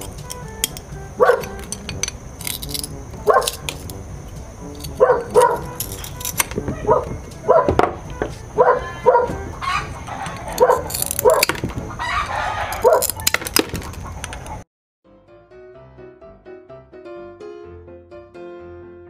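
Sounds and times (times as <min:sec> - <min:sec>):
soft piano music: 0:00.0 - 0:11.5, 0:15.1 - 0:19.0
animal calls: 0:06.7 - 0:07.8, 0:08.6 - 0:14.6.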